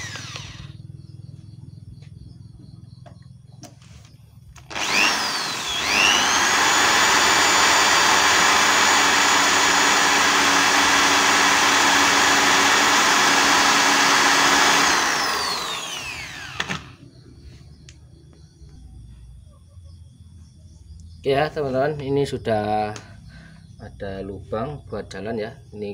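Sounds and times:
electric drill boring: 0.0 - 0.8, 4.6 - 17.0.

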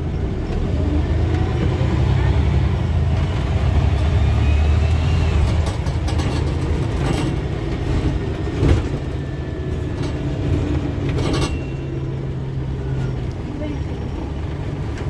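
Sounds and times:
bus engine drone: 0.0 - 15.0
bodywork rattles and knocks: 5.4 - 11.6.

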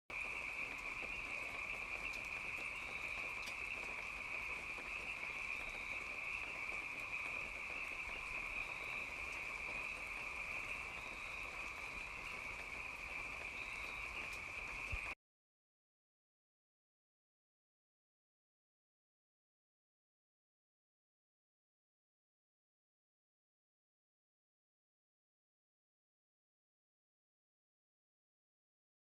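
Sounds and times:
night insects chorus: 0.1 - 15.2.

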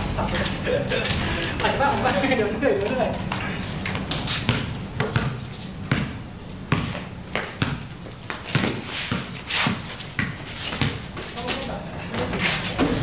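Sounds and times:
basketball bouncing on concrete: 4.1 - 11.1.

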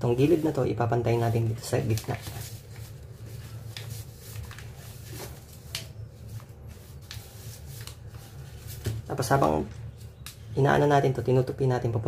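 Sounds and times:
paper rustling and crinkling: 0.0 - 10.2.

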